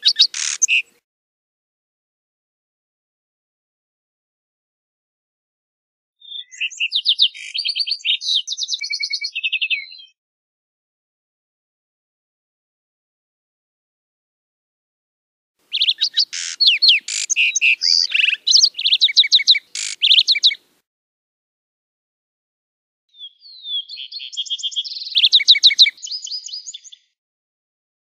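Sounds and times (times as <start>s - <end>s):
sparrow singing trills: 0.0s - 0.9s, 6.2s - 10.2s, 15.7s - 20.6s, 23.1s - 27.2s.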